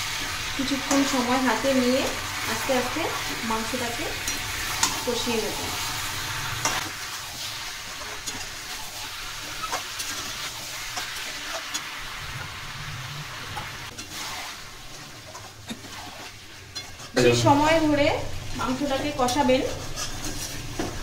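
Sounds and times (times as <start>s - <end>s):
chicken sizzling in oil: 0.0s - 21.0s
metal spatula scraping pan: 4.1s - 18.0s, 18.9s - 21.0s.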